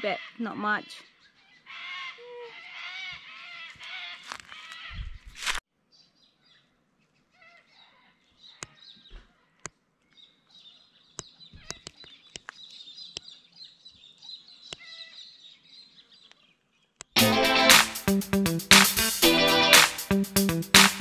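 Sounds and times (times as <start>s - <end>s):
faint birdsong chirps and whistles: 0.0s - 1.8s, 2.6s - 17.2s.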